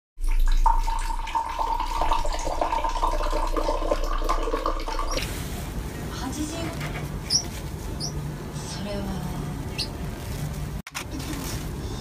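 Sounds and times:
water pouring into glass: 0.2 - 5.2.

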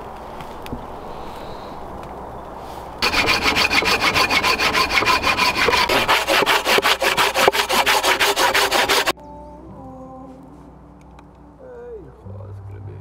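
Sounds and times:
hand saw cutting log: 3.0 - 9.1.

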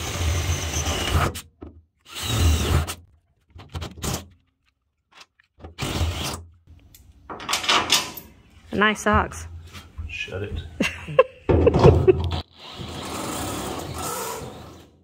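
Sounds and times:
cordless drill drilling steel: 2.0 - 3.0.

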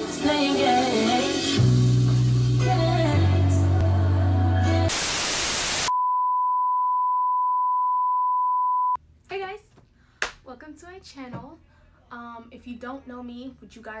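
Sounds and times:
television static hiss: 4.9 - 5.9
steady high beep: 5.8 - 9.0.

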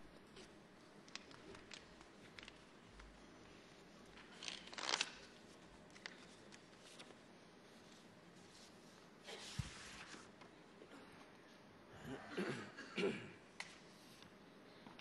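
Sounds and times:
rustling crackle: 4.2 - 7.2.

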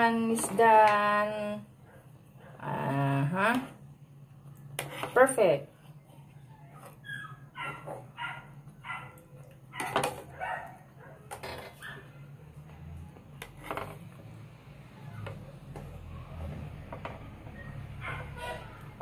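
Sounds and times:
dog barking: 7.5 - 12.2, 17.6 - 18.7.

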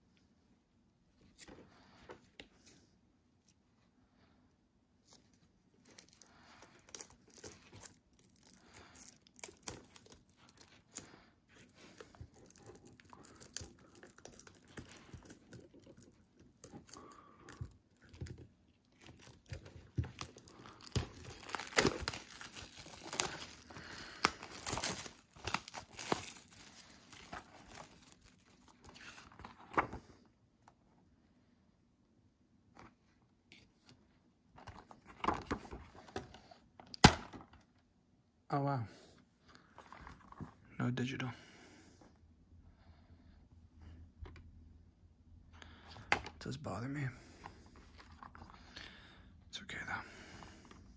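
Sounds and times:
plastic shrink-wrap crinkling: 5.8 - 29.0.

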